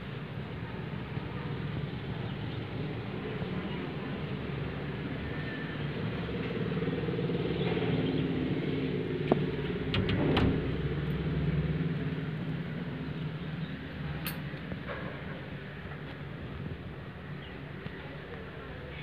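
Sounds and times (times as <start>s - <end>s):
vehicle engine rumbling: 0.0s - 19.0s
sharp click: 14.2s - 14.6s.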